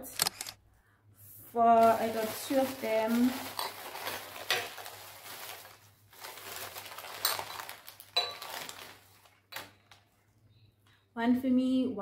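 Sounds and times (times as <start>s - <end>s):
glassware handling rustle: 1.8s - 5.7s, 7.0s - 10.0s.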